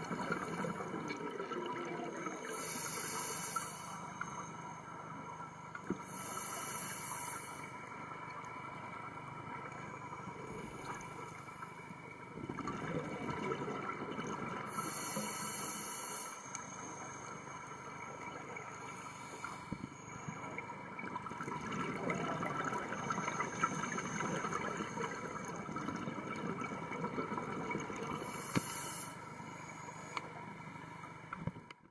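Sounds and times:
faint steady hum: 0:00.0 - 0:31.9
regulator air hissing: 0:02.5 - 0:04.2, 0:06.0 - 0:07.7, 0:14.7 - 0:17.4, 0:28.2 - 0:30.2
rumbling underwater bubbles: 0:12.3 - 0:14.8, 0:20.5 - 0:28.3.

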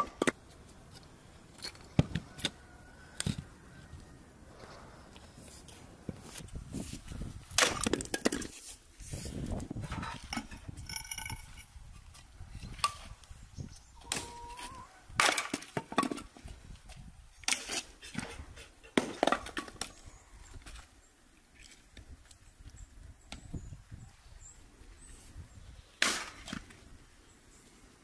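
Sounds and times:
axe chopping firewood: 0:15.2 - 0:16.2, 0:26.0 - 0:26.7.

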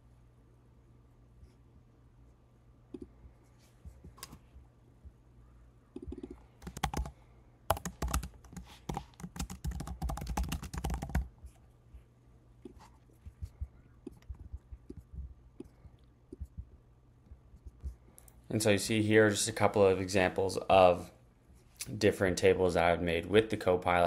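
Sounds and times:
typing on computer keyboard: 0:06.0 - 0:11.3.

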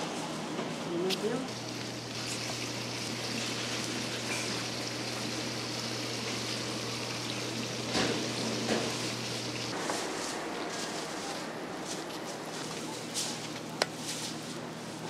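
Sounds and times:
oil sizzling in frying pan: 0:01.5 - 0:09.8.

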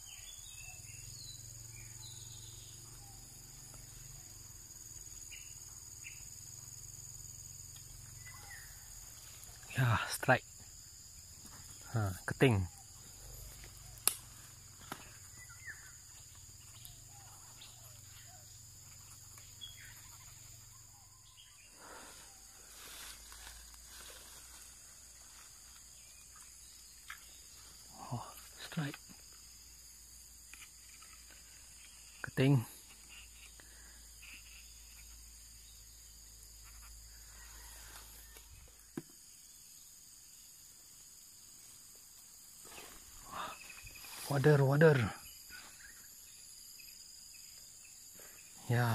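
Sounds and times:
soft bird chirps: 0:00.0 - 0:04.2, 0:07.7 - 0:10.1, 0:11.2 - 0:29.5, 0:30.3 - 0:39.0, 0:42.7 - 0:48.9
high insect drone: 0:00.0 - 0:48.9.

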